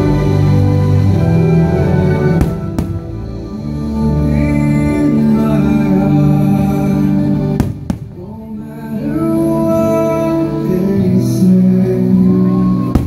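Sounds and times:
music over loudspeakers: 0:00.0 - 0:13.0
firework bangs: 0:02.4 - 0:03.2, 0:07.6 - 0:08.3.

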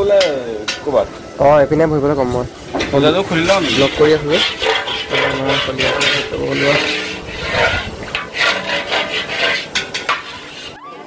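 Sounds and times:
gas burners hissing: 0:00.0 - 0:10.8
voices: 0:00.0 - 0:11.0
metal ladle scraping wok: 0:02.6 - 0:10.8.

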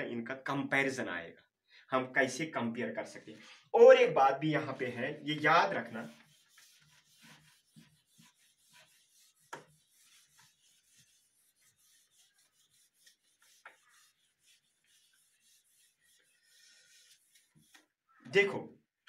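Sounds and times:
eraser rubbing whiteboard: 0:05.7 - 0:18.0.

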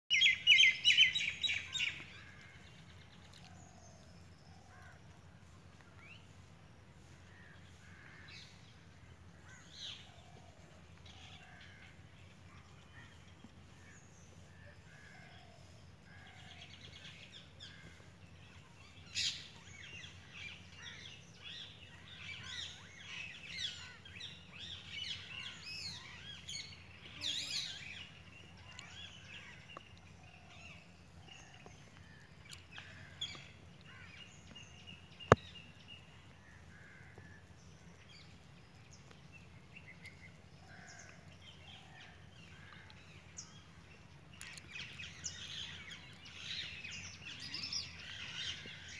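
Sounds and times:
small birds chirping: 0:00.1 - 0:48.9.

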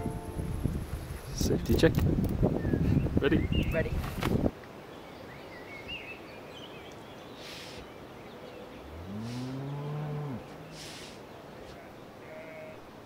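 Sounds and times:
faint birdsong chirps: 0:02.5 - 0:04.0, 0:04.6 - 0:12.9
cow mooing: 0:08.8 - 0:10.8, 0:11.7 - 0:12.8.

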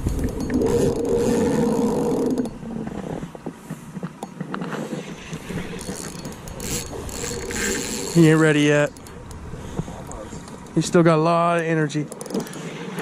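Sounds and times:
fishing reel squeaking: 0:00.1 - 0:02.6, 0:05.0 - 0:10.7, 0:12.0 - 0:13.0
light reel clicks: 0:04.0 - 0:10.8, 0:11.4 - 0:13.0.

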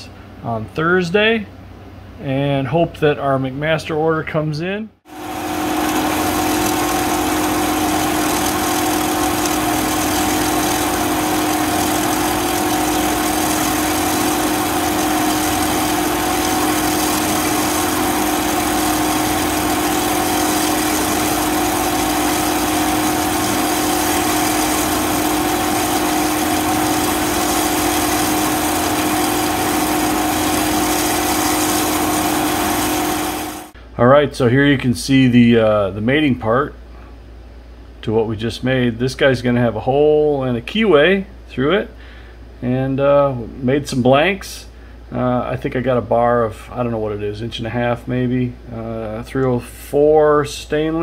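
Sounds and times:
bandsaw cutting metal: 0:05.1 - 0:33.8.

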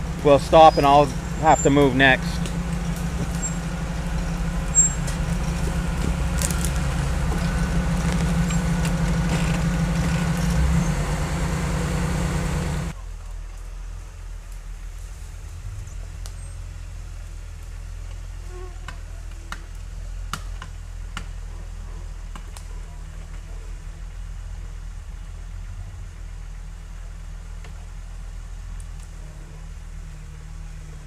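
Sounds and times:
engine running at low revs: 0:00.0 - 0:31.0
sharp cracks and snaps: 0:06.0 - 0:07.1.

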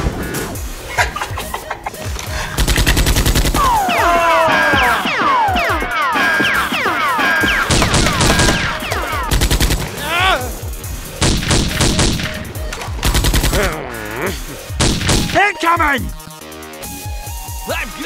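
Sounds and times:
background music: 0:00.0 - 0:18.0
automatic gunfire bursts: 0:02.6 - 0:03.8, 0:07.6 - 0:10.0, 0:11.2 - 0:12.4, 0:13.0 - 0:13.7.

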